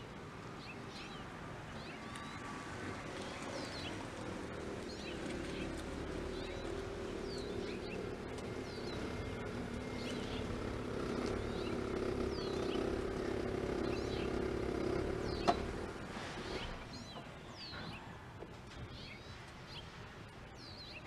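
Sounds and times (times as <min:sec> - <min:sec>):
vehicle engine hum: 0:00.0 - 0:17.2
small birds chirping: 0:00.0 - 0:21.0.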